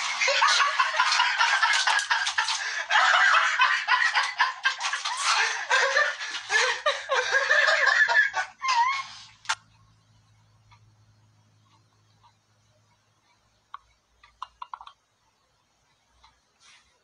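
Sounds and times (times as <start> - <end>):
person giggling: 0.0 - 9.2
cat scrabbling in bathtub: 0.4 - 2.6.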